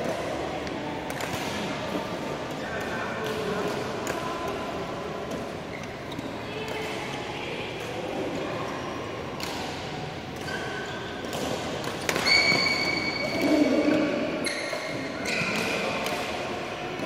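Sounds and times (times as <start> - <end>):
rackets hitting shuttlecock: 0.0 - 6.0, 9.2 - 17.0
sneakers squeaking on court: 10.4 - 15.8.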